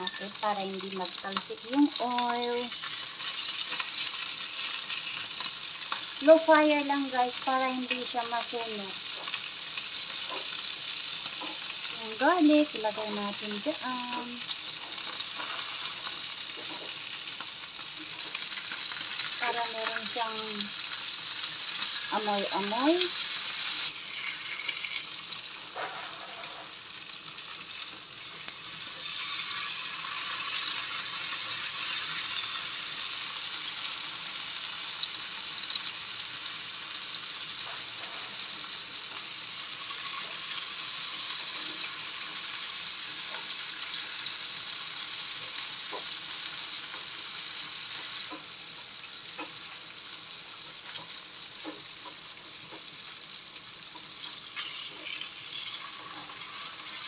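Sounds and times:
fish sizzling in a pan: 0.0s - 57.0s.

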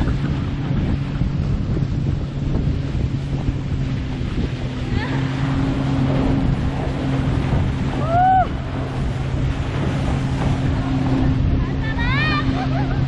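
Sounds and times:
motorboat engine drone: 0.0s - 13.0s
water rushing and spraying: 0.0s - 13.0s
wind buffeting microphone: 0.0s - 13.0s
person crying out: 8.0s - 8.5s.

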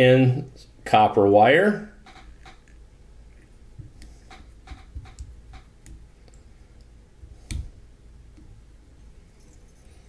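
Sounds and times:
light clicks and ticks: 3.8s - 6.9s.

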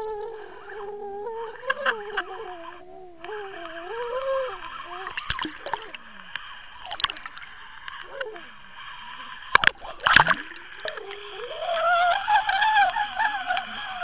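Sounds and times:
water splashing and gurgling: 4.6s - 14.0s.

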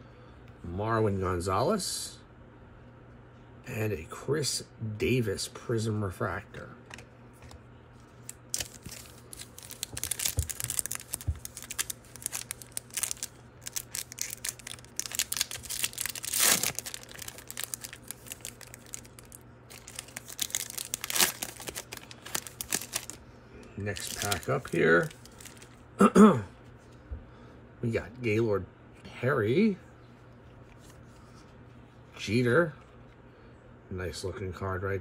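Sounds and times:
foil wrapper crinkling: 8.0s - 25.8s
foil wrapper tearing: 8.2s - 23.2s, 23.8s - 25.8s.

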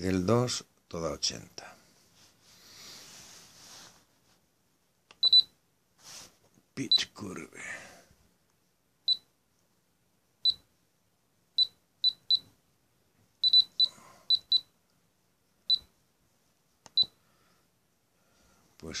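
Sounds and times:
short high key beeps: 5.2s - 5.5s, 13.4s - 14.7s.

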